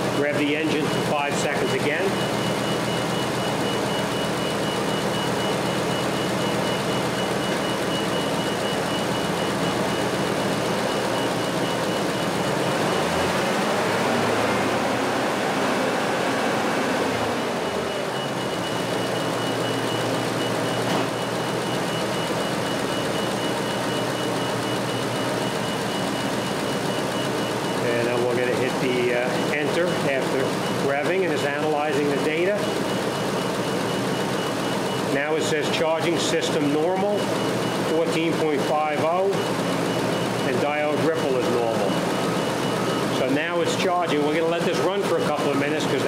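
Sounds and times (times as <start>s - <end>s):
truck engine revving: 0.0s - 35.3s.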